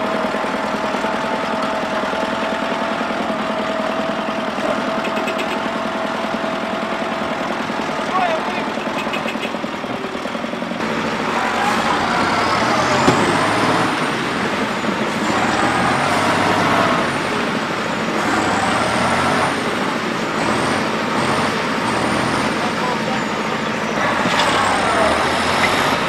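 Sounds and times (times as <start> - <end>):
tractor diesel engines under load: 0.0 - 26.0
sharp knock: 13.0 - 13.5.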